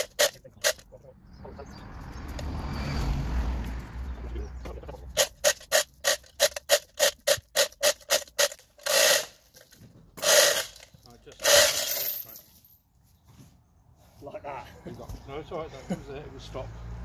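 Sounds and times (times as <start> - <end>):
scraping burst: 5.1 - 12.2
chain block ratcheting clicks: 5.2 - 12.0.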